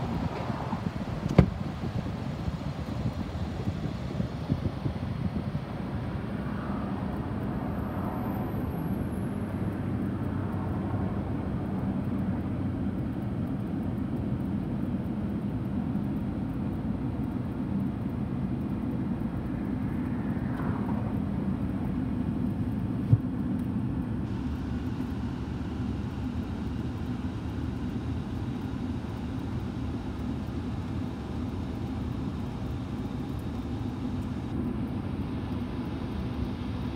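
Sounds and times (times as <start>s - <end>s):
car road and engine noise: 0.0s - 36.9s.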